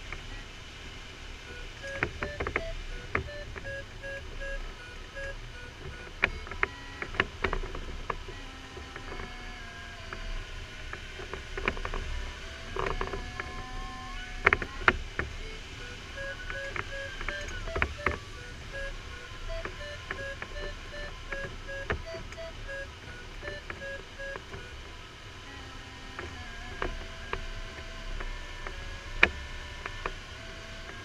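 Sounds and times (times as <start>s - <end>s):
variometer tone sliding in pitch: 1.5s - 7.0s, 12.2s - 24.9s
variometer beeping: 1.5s - 9.1s, 12.2s - 24.9s
sharp clicks: 15.8s - 24.7s.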